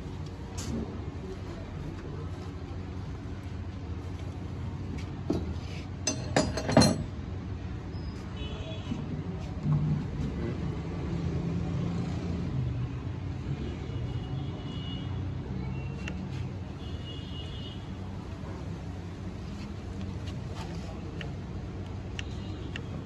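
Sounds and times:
metal tools clinking: 6.0s - 7.1s.

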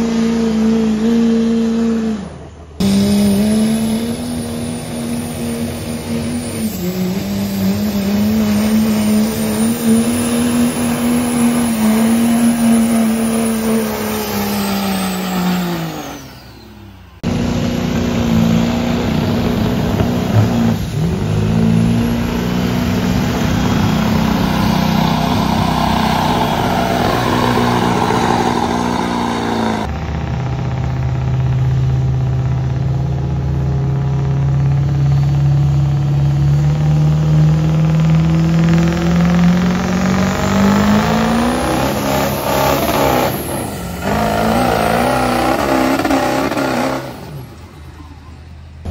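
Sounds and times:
diesel trucks engines at full throttle: 0.0s - 48.9s.

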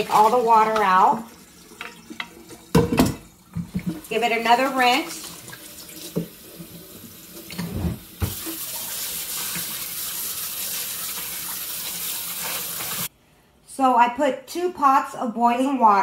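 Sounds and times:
kitchen faucet running: 0.0s - 13.1s.

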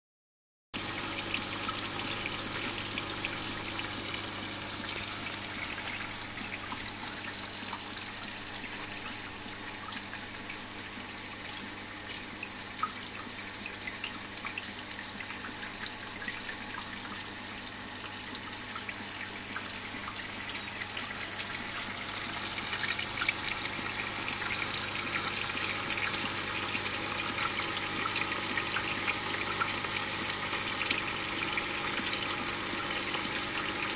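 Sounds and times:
water drips ticking: 1.3s - 10.6s, 12.1s - 17.3s.

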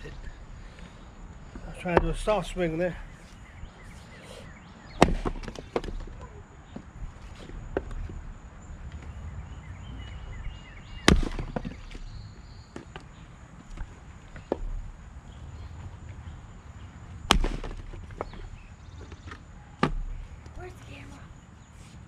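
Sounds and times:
axe cracking into wood: 5.0s - 6.1s, 11.0s - 12.1s, 17.2s - 18.4s, 19.8s - 20.1s
split wood knocking: 5.0s - 6.9s, 11.0s - 12.0s, 17.3s - 20.2s.

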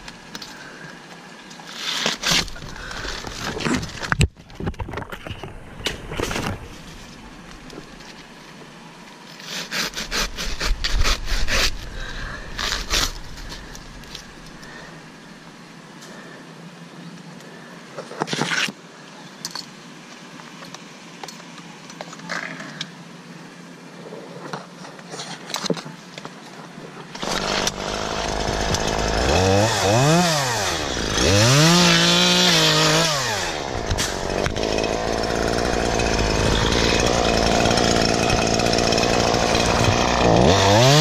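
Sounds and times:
dry palm fronds rustling: 0.0s - 15.0s.

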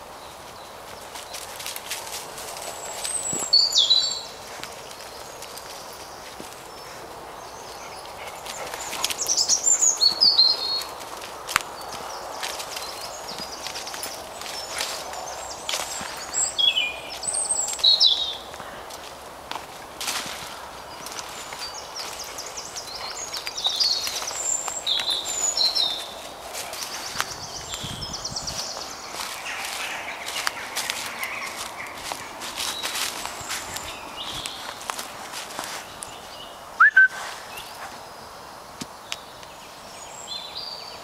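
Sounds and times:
footsteps on leaf litter: 0.0s - 36.5s, 37.1s - 38.1s
small birds chirping: 0.0s - 41.0s
songbird trilling: 3.1s - 4.3s, 36.3s - 37.8s
person whistling two-note call: 36.8s - 37.2s.

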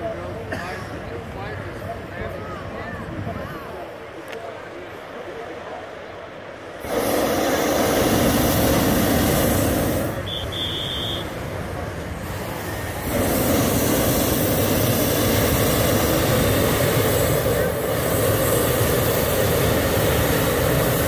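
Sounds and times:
steady rush: 3.8s - 21.0s
propane burner blasts: 6.6s - 21.0s.

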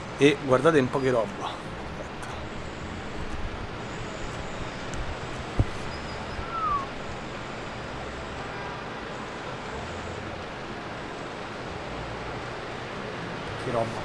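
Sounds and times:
distant city traffic: 0.0s - 14.0s
short falling squeak: 4.6s - 7.1s.

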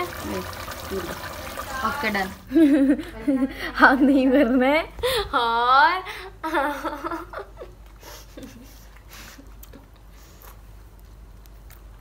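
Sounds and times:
woman speaking: 0.9s - 2.4s, 3.0s - 6.2s.

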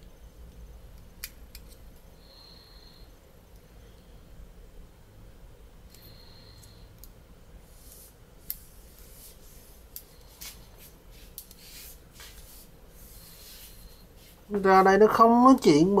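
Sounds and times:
scratchy rustles: 7.7s - 14.6s.

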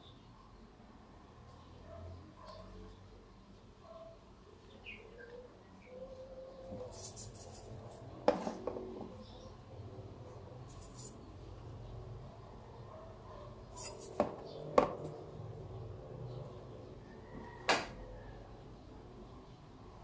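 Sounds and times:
rubbing and rustling on cardboard: 6.7s - 8.6s.

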